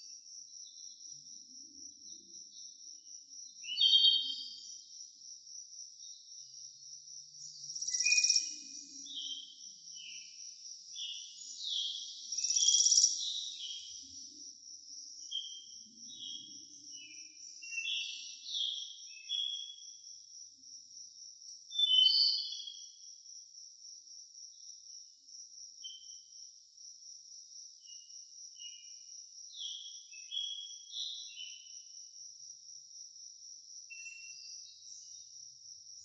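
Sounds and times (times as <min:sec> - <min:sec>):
insects trilling: 0:00.0 - 0:36.0
bird chirps: 0:03.6 - 0:04.8, 0:07.4 - 0:10.4, 0:11.0 - 0:14.4, 0:15.2 - 0:20.0, 0:21.7 - 0:22.8, 0:33.9 - 0:35.3.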